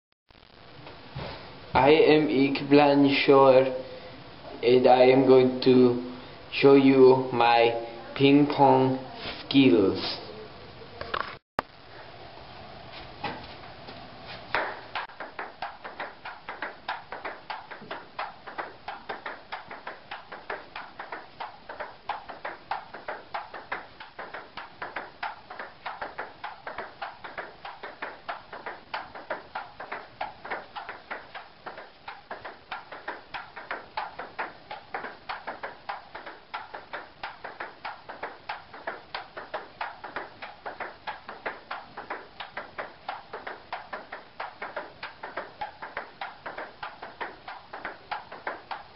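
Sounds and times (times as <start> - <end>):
table tennis ball clicking: 14.6 - 48.9.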